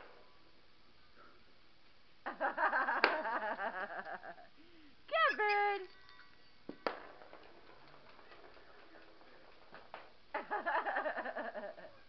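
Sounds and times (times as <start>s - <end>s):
jingle ball rattling: 5.2s - 10.0s.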